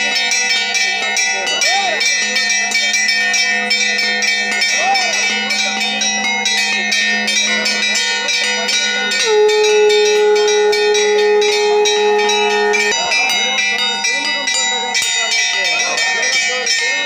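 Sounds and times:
bells ringing rapidly: 0.0s - 17.0s
held tone: 3.7s - 15.0s.

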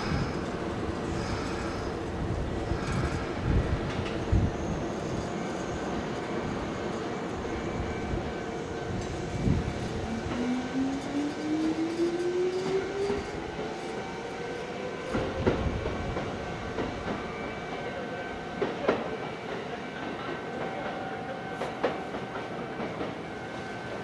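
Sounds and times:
train running rumble: 0.0s - 17.3s.

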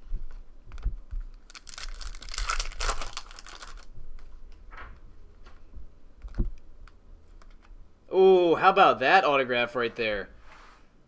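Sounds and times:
foil wrapper tearing and crinkling: 1.4s - 3.9s.

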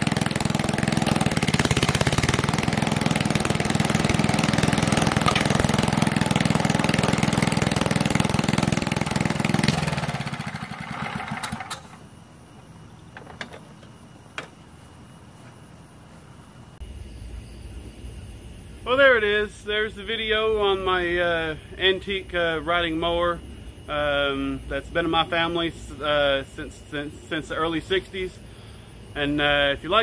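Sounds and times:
riding mower engine running: 0.0s - 15.8s.

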